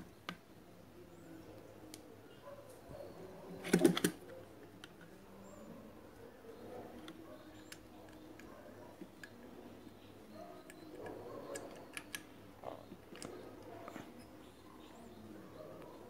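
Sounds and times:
small tools clicking and tapping: 10.6s - 12.3s.

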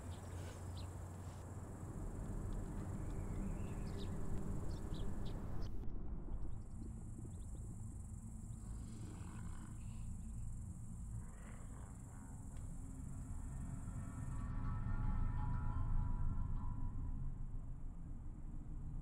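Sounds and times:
insects droning: 0.0s - 5.7s, 6.6s - 17.2s
low rumble: 1.9s - 8.8s.

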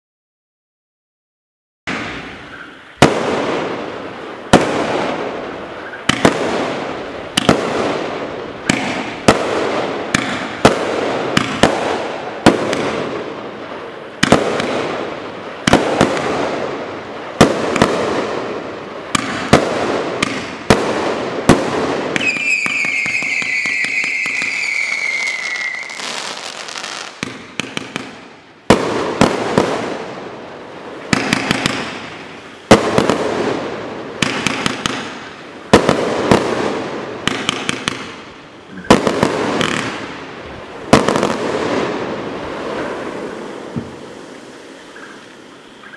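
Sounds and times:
firework bangs: 1.9s - 45.8s
firework whistle: 22.1s - 27.2s.

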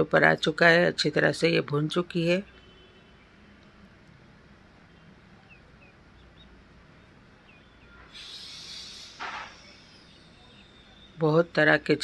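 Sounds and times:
faint bird chirps: 4.8s - 11.8s.

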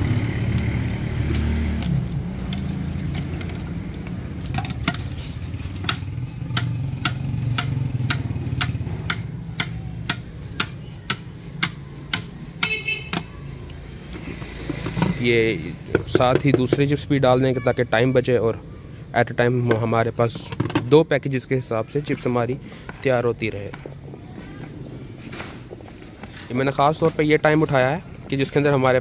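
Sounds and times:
sharp evenly spaced taps: 5.8s - 13.4s.

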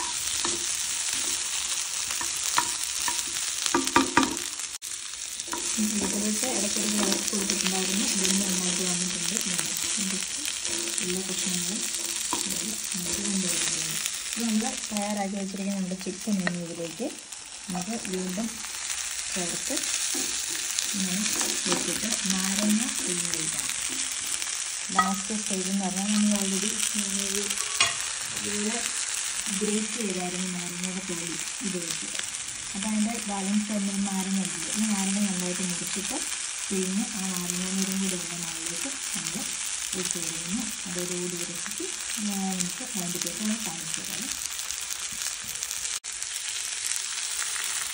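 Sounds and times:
food sizzling in oil: 0.0s - 47.9s
metal spatula stirring: 2.1s - 4.5s, 5.4s - 7.7s, 9.4s - 14.3s, 19.2s - 22.7s, 27.4s - 28.1s
spatula tapping pan: 2.2s - 4.5s, 10.5s - 13.2s.

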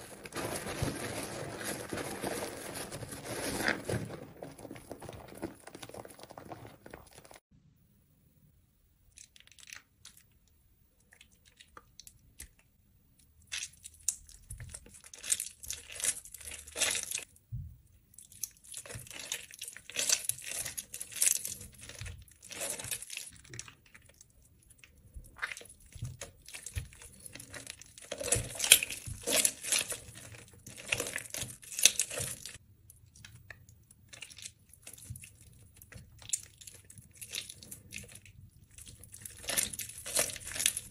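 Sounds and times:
wet soap crackling and crunching: 0.0s - 7.5s, 9.1s - 10.4s, 11.0s - 40.9s.

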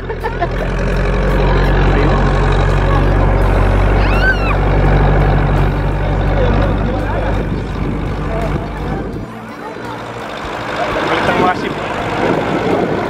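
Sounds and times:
tractor engine humming: 0.0s - 13.0s
brief bending high tone: 3.4s - 4.8s.

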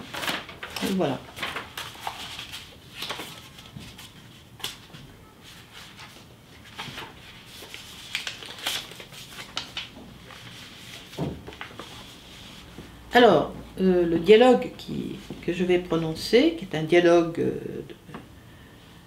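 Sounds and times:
book pages rustling: 0.0s - 13.0s.

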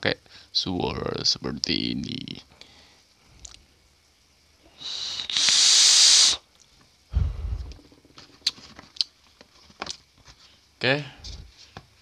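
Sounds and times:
vape hissing: 4.7s - 6.5s.

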